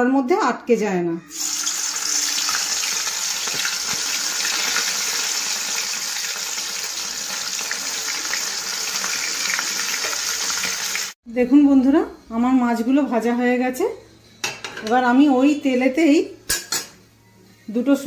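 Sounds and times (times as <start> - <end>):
fish sizzling in hot oil: 1.3 - 11.2.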